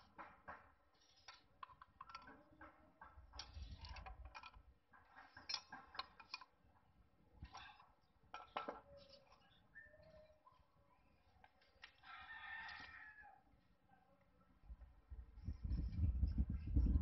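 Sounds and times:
metal parts and tool clinking: 0:01.0 - 0:02.4, 0:03.3 - 0:06.5, 0:07.4 - 0:10.4.

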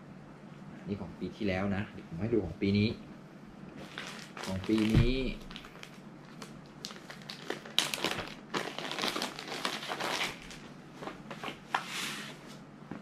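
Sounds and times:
plastic bag crinkling: 0:03.8 - 0:11.6.

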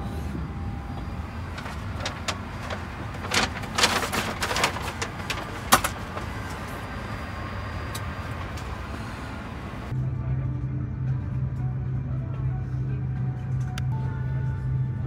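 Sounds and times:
aircraft cabin hum: 0:00.0 - 0:09.9.

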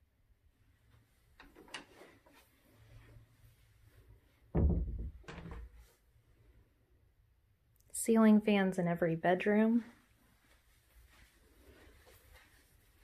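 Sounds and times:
dull low thump: 0:04.5 - 0:05.6.

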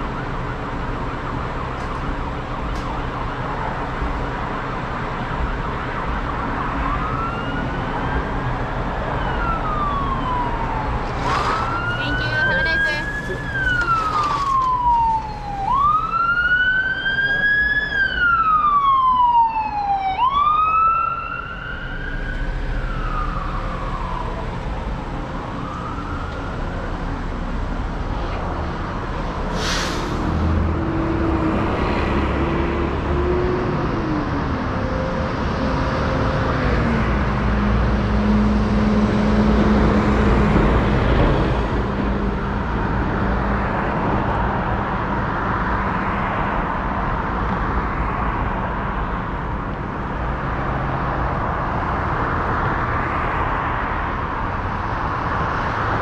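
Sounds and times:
sirens wailing: 0:00.0 - 0:41.8
traffic noise: 0:00.0 - 0:56.0.

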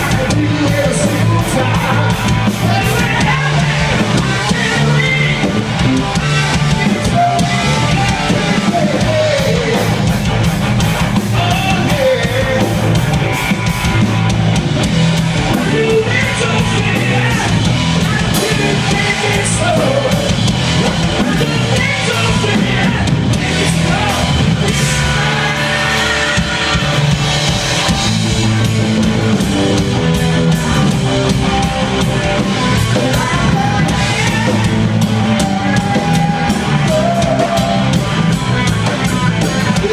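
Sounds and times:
lead singer vocals: 0:00.0 - 0:10.2, 0:11.2 - 0:13.1, 0:15.5 - 0:27.2, 0:32.2 - 0:38.4, 0:39.4 - 0:39.9
distorted electric guitars: 0:00.0 - 0:39.9
drum kit: 0:00.0 - 0:39.9
electric bass: 0:00.0 - 0:39.9.

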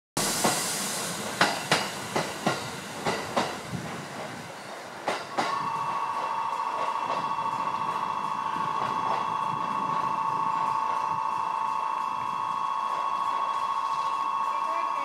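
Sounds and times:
electric departure bell ringing: 0:05.5 - 0:15.0.

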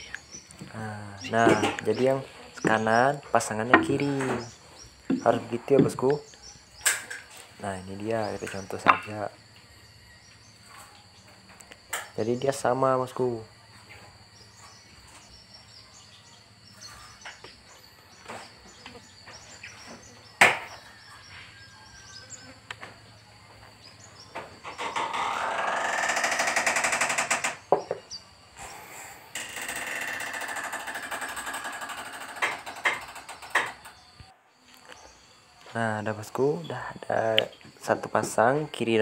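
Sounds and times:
handling of wood: 0:00.0 - 0:06.2, 0:08.3 - 0:09.3
power tool buzzing on wood: 0:24.7 - 0:28.1, 0:28.7 - 0:34.0.

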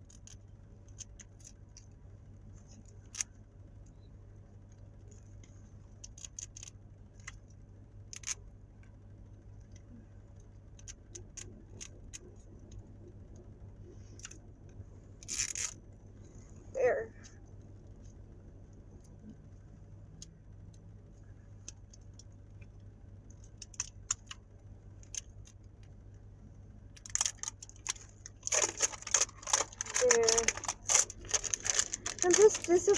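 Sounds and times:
faint low hum: 0:00.0 - 0:32.9
plastic wrap crinkling: 0:27.0 - 0:32.9.

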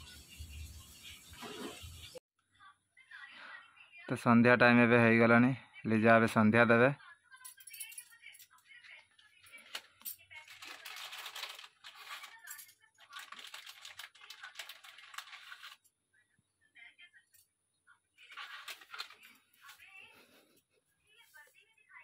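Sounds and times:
bangles clinking: 0:07.4 - 0:08.6
incense packet rustling: 0:10.4 - 0:15.9, 0:18.3 - 0:19.9.

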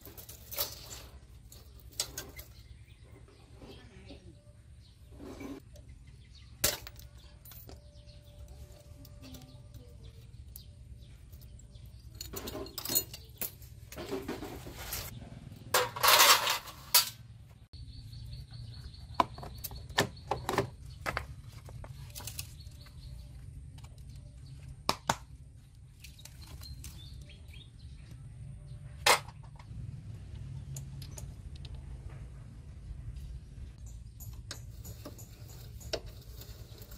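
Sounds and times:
chain rattling scrape: 0:00.0 - 0:02.7, 0:11.7 - 0:15.2, 0:15.8 - 0:17.2, 0:34.2 - 0:36.9.

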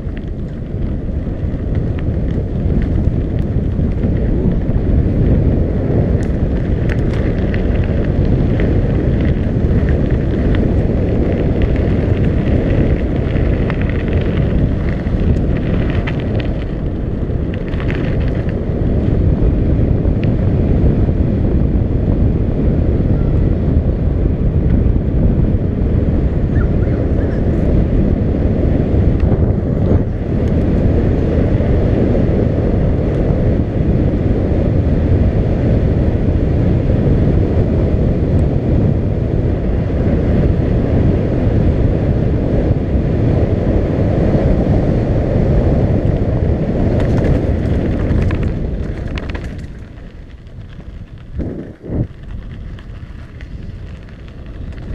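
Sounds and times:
bike clicks and rattles: 0:00.0 - 0:21.3, 0:22.1 - 0:54.9
wind buffeting microphone: 0:00.0 - 0:54.9.

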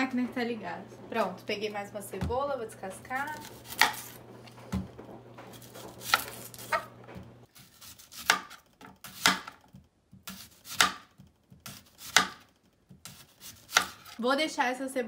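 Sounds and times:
low hum of household machine: 0:00.0 - 0:08.4
knife chopping on wooden board: 0:03.3 - 0:04.9, 0:05.5 - 0:07.0, 0:07.6 - 0:14.2.

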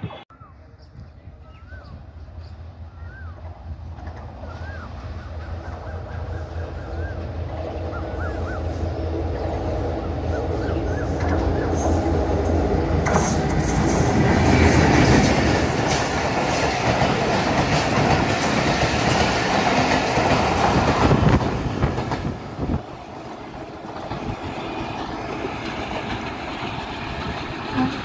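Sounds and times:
diesel locomotive engine drone: 0:00.0 - 0:28.0
train wheels clattering over rail joints: 0:11.0 - 0:28.0.

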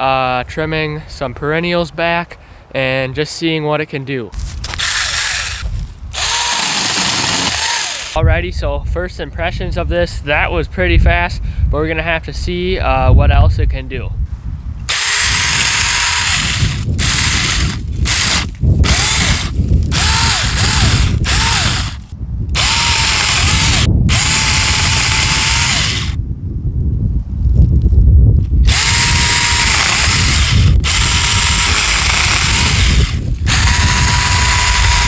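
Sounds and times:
cordless chainsaw cutting branches: 0:04.4 - 0:08.2, 0:14.9 - 0:26.2, 0:28.6 - 0:35.0.

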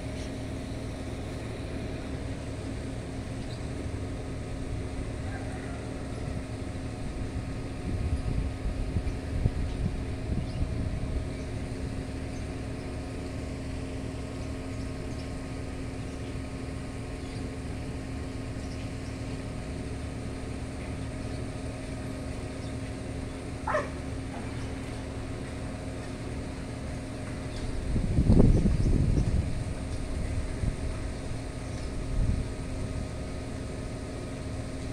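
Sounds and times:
outdoor low rumble: 0:00.0 - 0:34.9
animal call: 0:05.2 - 0:06.1, 0:23.7 - 0:24.4.

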